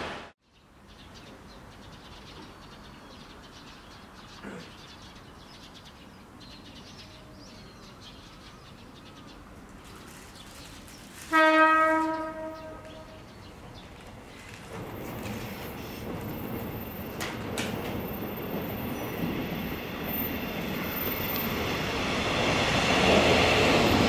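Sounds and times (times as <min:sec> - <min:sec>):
small birds chirping: 0:00.4 - 0:11.2.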